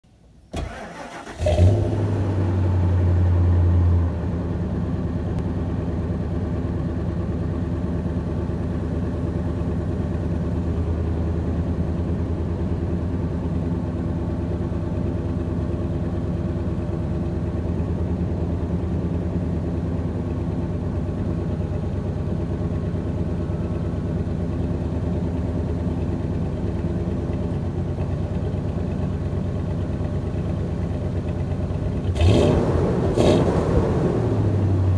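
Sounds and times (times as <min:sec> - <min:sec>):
engine starting and idling: 0:00.4 - 0:03.3
engine starter cranking: 0:00.5 - 0:01.8.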